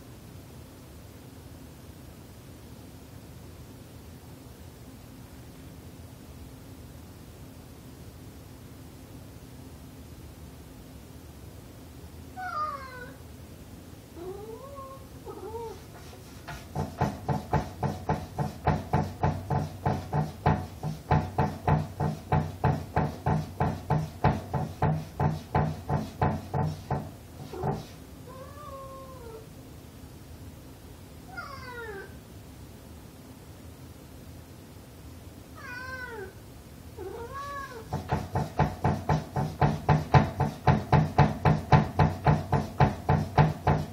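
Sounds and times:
cat meowing: 12.4s - 13.2s, 14.2s - 15.9s, 28.3s - 29.5s, 31.3s - 32.2s, 35.6s - 36.4s, 37.0s - 37.9s
wooden door knocking and rattling: 16.5s - 27.9s, 37.9s - 43.9s.

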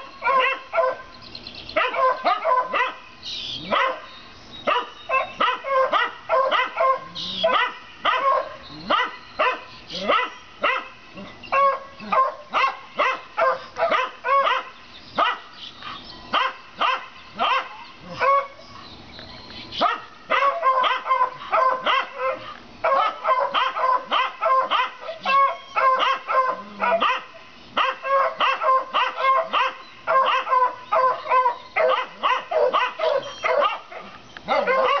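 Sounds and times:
dogs barking rapidly: 0.0s - 18.6s, 19.8s - 35.0s.

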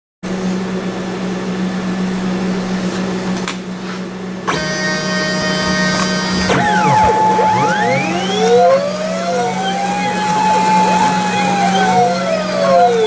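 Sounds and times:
high-pitched machine whine: 4.2s - 13.0s
cutting machine humming: 4.4s - 13.0s.

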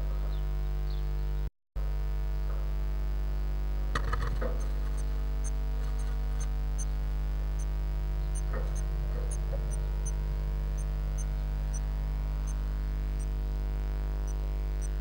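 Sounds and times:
electrical hum: 0.0s - 15.0s
faint high ticks: 4.0s - 6.9s, 8.3s - 10.2s, 14.2s - 15.0s.

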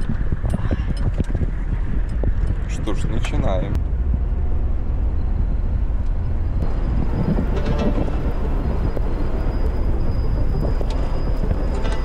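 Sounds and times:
vehicle engine and road rumble: 0.0s - 12.0s
vehicle body rattles: 6.2s - 12.0s.

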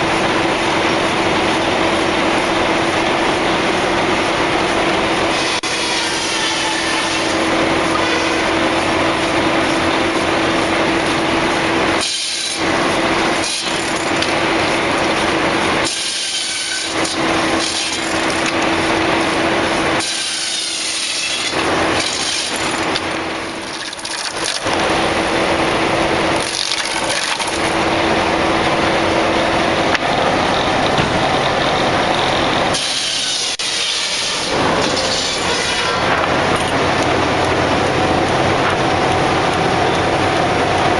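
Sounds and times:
mill machinery humming: 0.0s - 40.9s
saw hissing through wood: 32.7s - 36.1s.

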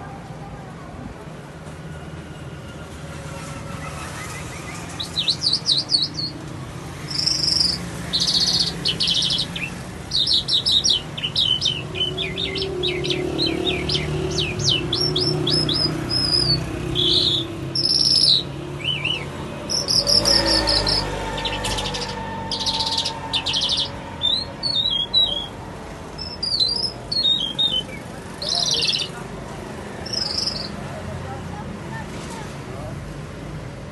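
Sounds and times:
lark singing: 4.3s - 6.4s, 7.1s - 29.2s, 30.0s - 30.8s.

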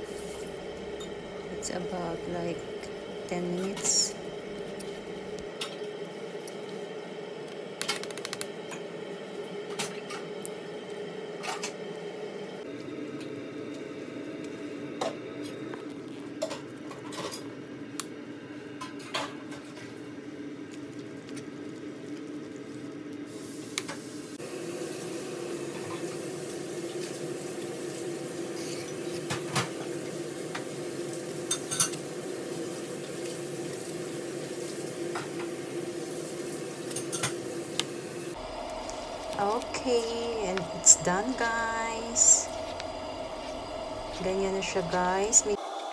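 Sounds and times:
steady low hum: 0.0s - 23.2s, 36.9s - 45.6s.

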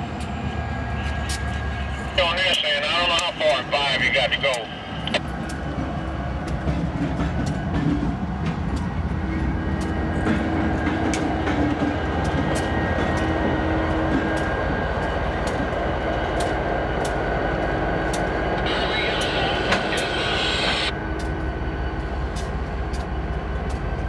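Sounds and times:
diesel locomotive engines rumbling: 0.0s - 24.0s
steady hum: 18.6s - 21.0s.

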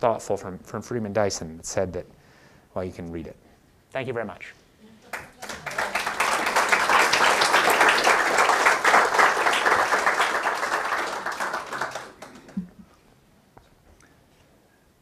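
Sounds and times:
audience applauding: 5.1s - 12.8s.

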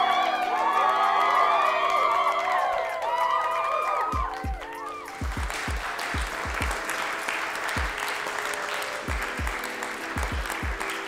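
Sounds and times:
crowd applause: 0.0s - 11.0s
music with thumping beat: 4.2s - 6.9s, 7.8s - 8.0s, 9.1s - 11.0s.

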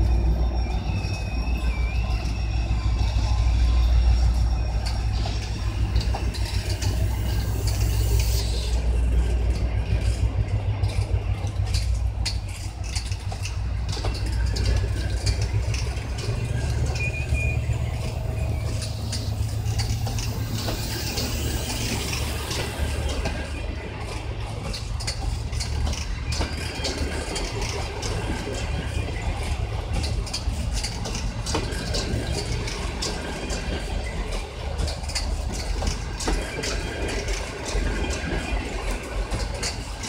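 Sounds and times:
high wheel squeal: 0.0s - 40.0s
train wheels rumbling on rail: 0.0s - 40.0s
clicks and knocks of wheels: 9.5s - 21.9s, 22.5s - 40.0s.

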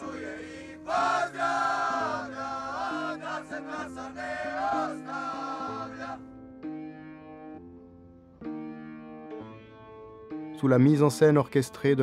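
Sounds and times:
voices singing long notes: 0.0s - 6.4s.

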